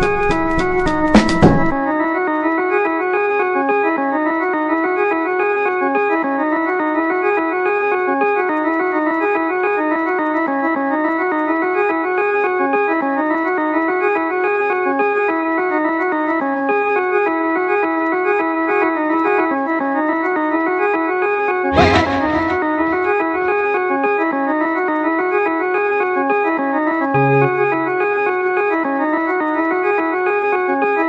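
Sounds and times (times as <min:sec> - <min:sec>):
organ-like keyboard melody: 0:00.0 - 0:16.5, 0:17.3 - 0:31.0
beat-driven music: 0:21.7 - 0:23.8, 0:27.2 - 0:28.2.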